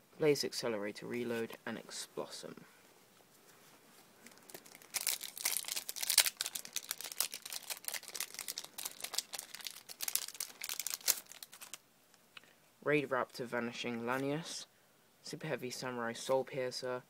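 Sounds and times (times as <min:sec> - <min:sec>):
foil wrapper crinkling and tearing: 0:04.2 - 0:11.8.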